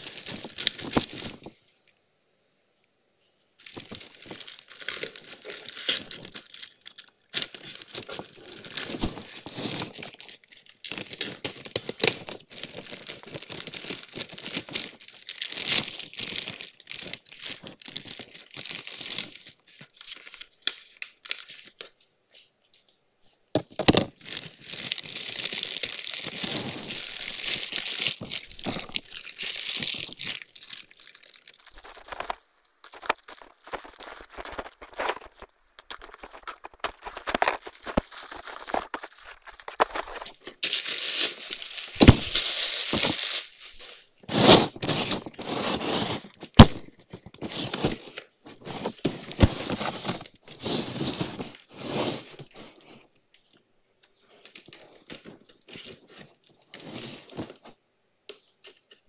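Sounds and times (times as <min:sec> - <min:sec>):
plastic bag crinkling and tearing: 0:31.6 - 0:40.3.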